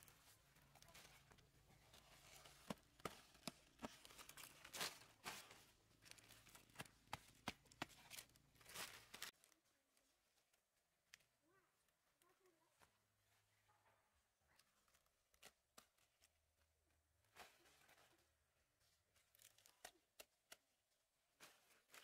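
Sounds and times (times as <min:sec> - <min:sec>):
leaves rustling: 0:04.1 - 0:06.6, 0:08.1 - 0:09.3.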